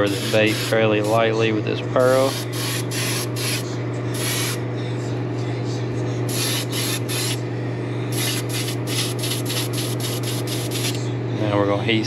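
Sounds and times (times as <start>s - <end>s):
airbrush hissing bursts: 0.0s - 1.2s, 2.0s - 3.6s, 4.2s - 4.6s, 6.3s - 7.4s, 8.2s - 11.0s
steady low hum: 0.0s - 12.0s.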